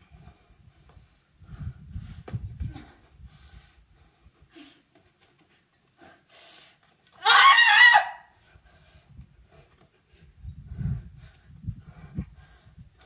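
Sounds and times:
person yelling with effort: 0:07.2 - 0:08.3.

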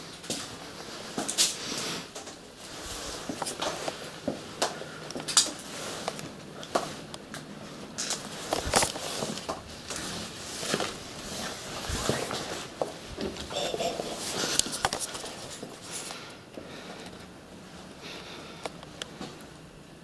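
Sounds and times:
footsteps crunching over debris: 0:07.8 - 0:13.5.

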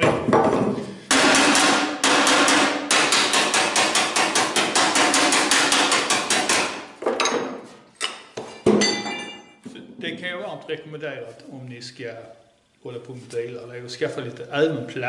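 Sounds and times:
plastic mallet tapping sheet metal: 0:00.0 - 0:06.9.

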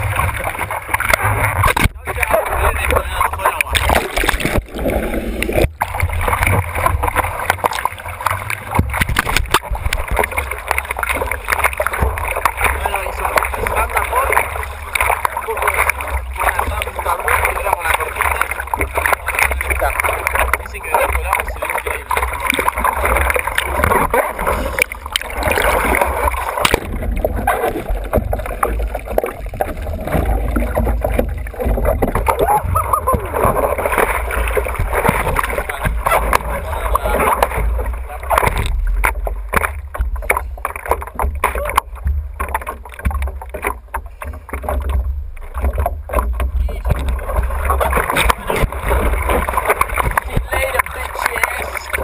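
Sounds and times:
low rumble of water: 0:00.0 - 0:52.0
seawater splashing and rushing: 0:00.0 - 0:52.0.

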